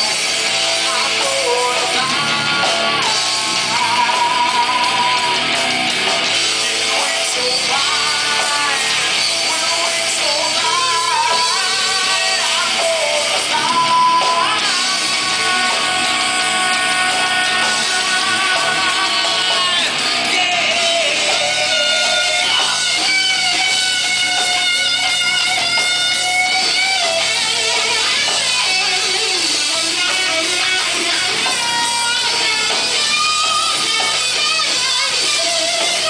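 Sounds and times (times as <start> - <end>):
live rock band: 0.0 - 36.0
singer holding long notes: 7.4 - 23.4.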